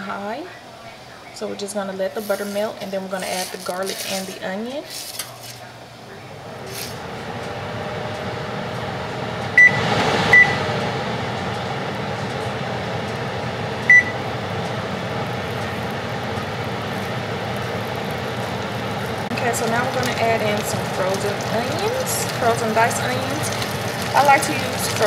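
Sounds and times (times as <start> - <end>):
kitchen appliance humming: 1.2 - 25.0.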